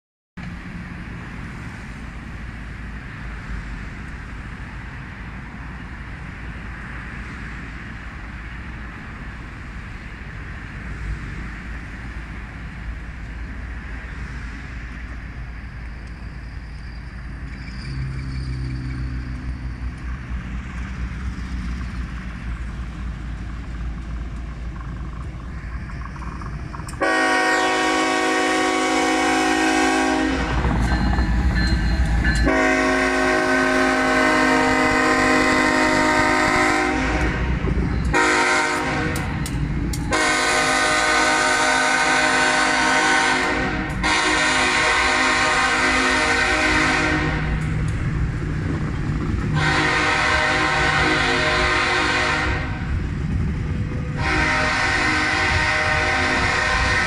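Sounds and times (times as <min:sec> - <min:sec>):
locomotives rumbling: 0:00.5 - 0:57.0
train air horn blasts: 0:27.0 - 0:30.7, 0:32.4 - 0:39.3, 0:40.1 - 0:47.6, 0:49.5 - 0:52.9, 0:54.1 - 0:57.0.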